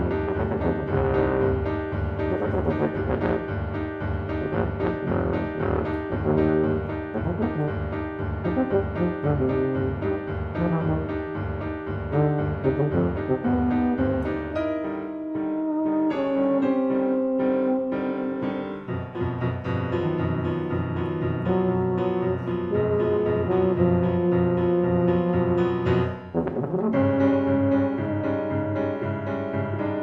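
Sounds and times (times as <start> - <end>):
piano chordal accompaniment: 0.0 - 30.0
tuba playing tune: 0.0 - 30.0.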